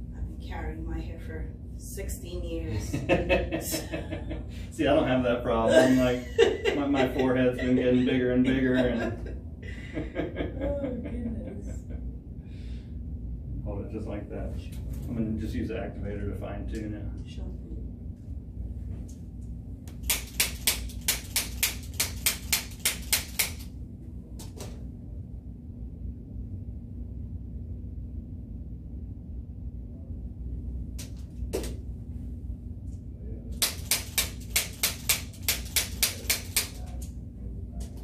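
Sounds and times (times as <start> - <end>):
sharp spring-loaded clicks: 33.6 - 36.8.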